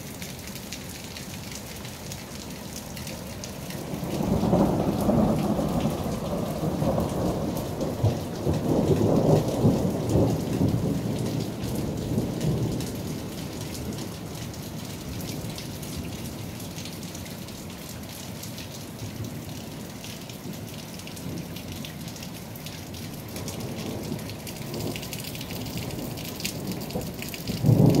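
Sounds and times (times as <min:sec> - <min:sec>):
hail and rain falling hard: 0:00.0 - 0:28.0
rolling thunder rumble: 0:03.8 - 0:13.0, 0:25.6 - 0:28.0.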